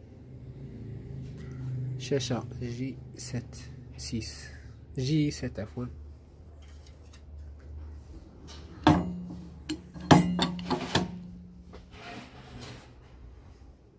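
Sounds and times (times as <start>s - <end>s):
low hum: 7.6s - 12.0s
metal lid clanks: 8.8s - 11.6s.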